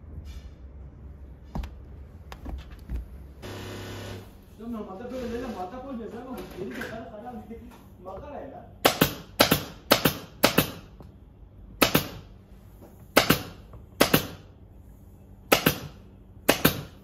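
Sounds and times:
pneumatic staple gun firing: 11.8s - 12.2s, 15.5s - 17.0s.

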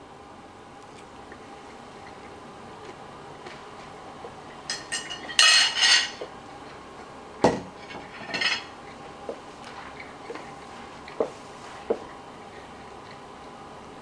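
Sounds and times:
fork and plate clinking: 4.7s - 6.2s.

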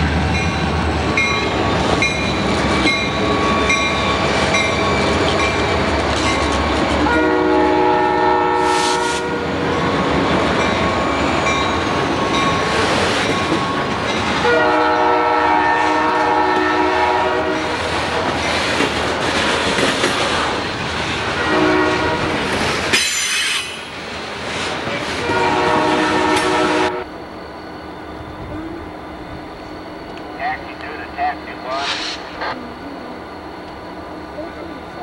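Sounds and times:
distant rail-yard noise: 0.0s - 35.0s
freight train rumbling past: 0.0s - 35.0s
locomotive horn blasts: 7.0s - 9.6s, 14.4s - 17.8s, 21.4s - 22.4s, 25.2s - 27.1s
high-pitched squeal: 27.0s - 34.4s.

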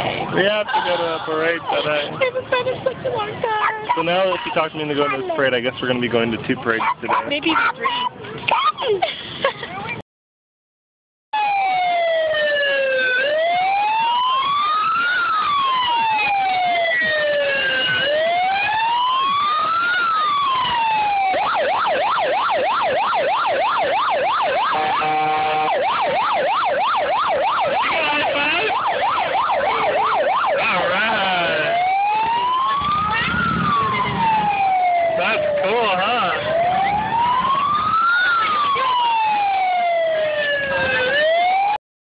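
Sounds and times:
emergency sirens wailing and yelping: 0.0s - 5.7s, 11.4s - 41.8s
horn blast: 24.6s - 25.9s.

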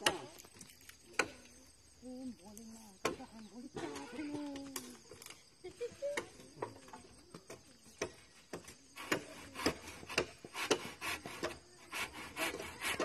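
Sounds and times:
hand saw cutting wood: 9.0s - 13.0s.

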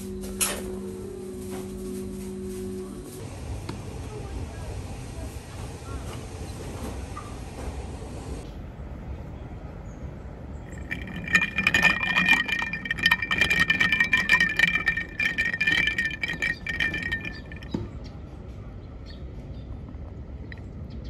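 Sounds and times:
ice cubes clinking in glass jar: 10.7s - 17.8s.

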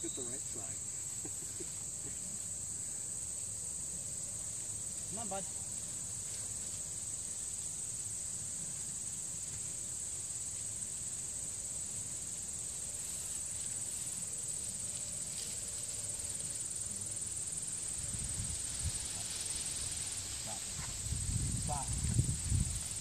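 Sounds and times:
crickets chirring: 0.0s - 23.0s.

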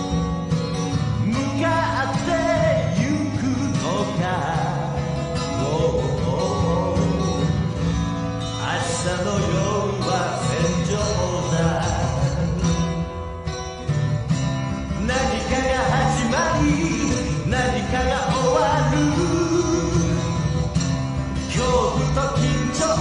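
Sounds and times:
bass line: 0.0s - 23.0s
guitar: 0.0s - 23.0s
person singing: 1.2s - 7.7s, 8.5s - 12.8s, 14.9s - 20.8s, 21.4s - 23.0s.

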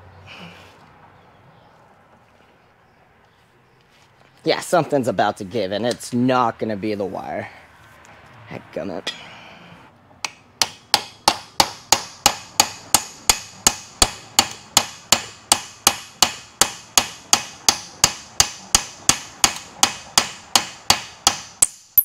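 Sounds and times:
hammer striking steel bar: 10.2s - 22.0s.

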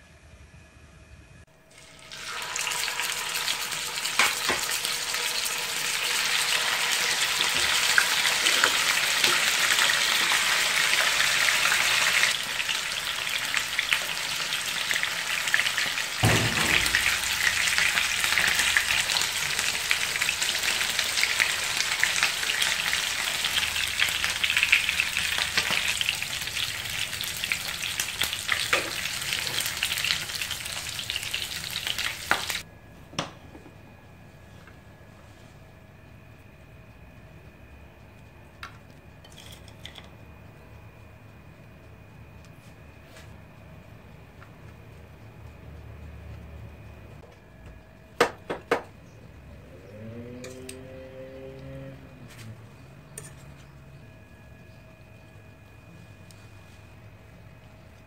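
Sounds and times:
chicken sizzling in hot oil: 1.7s - 32.6s
low thump: 16.2s - 17.2s.

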